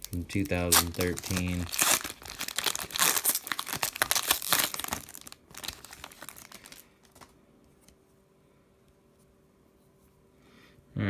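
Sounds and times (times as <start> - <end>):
foil wrapper tearing and crinkling: 0.0 - 7.3.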